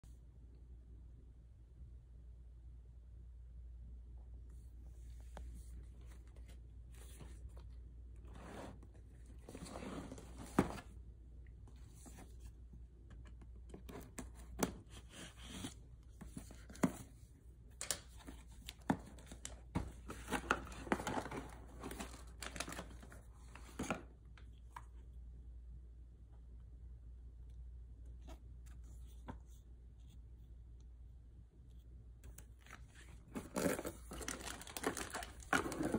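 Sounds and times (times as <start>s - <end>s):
cardboard tearing and rustling: 18.2s - 23.7s, 32.8s - 35.9s.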